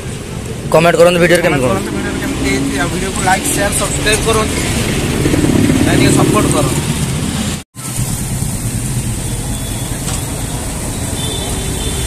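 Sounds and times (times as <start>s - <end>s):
street traffic rumble: 0.0s - 12.0s
sizzle of deep-frying in oil: 7.8s - 12.0s.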